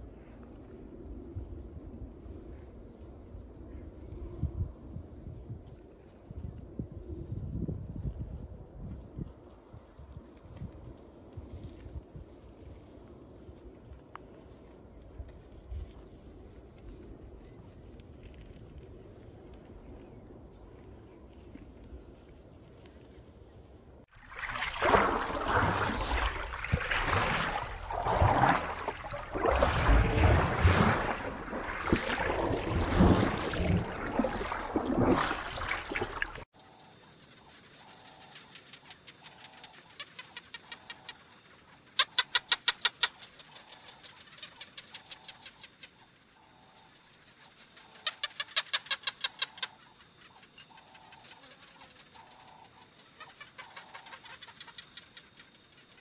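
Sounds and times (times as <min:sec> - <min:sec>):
underwater rushing and bubbling: 0:24.1 - 0:36.4
high insect buzz: 0:24.3 - 0:36.9.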